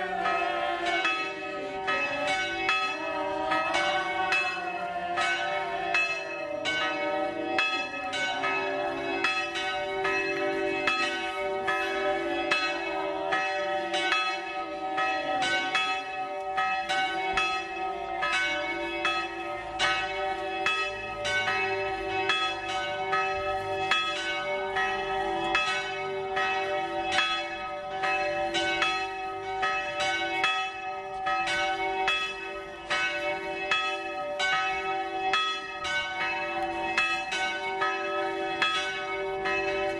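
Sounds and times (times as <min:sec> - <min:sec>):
church bells ringing: 0:00.0 - 0:39.9.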